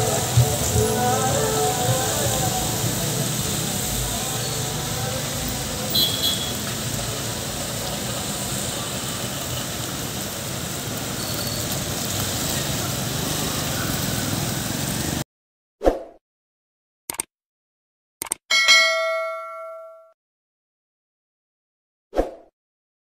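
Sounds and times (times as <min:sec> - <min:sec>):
road traffic rumble and hiss: 0:00.0 - 0:15.2.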